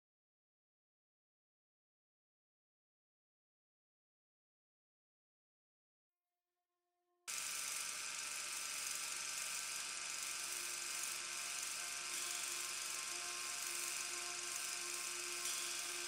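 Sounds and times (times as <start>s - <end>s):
faint wavering hum: 7.3s - 16.0s
film soundtrack hiss: 7.4s - 16.0s.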